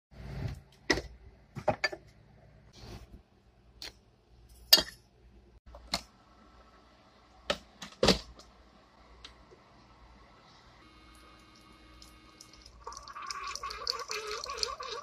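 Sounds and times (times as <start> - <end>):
faint machine hum: 6.1 - 15.0.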